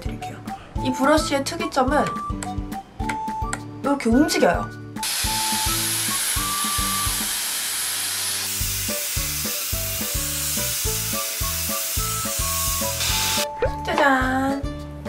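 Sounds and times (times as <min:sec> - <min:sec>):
background music with beat: 0:01.9 - 0:03.8
hair styler airy hiss: 0:05.0 - 0:13.5.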